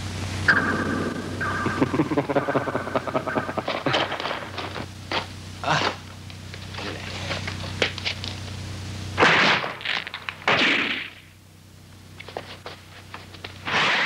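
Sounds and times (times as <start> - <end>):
loud sharp impacts: 9.2 - 11.2.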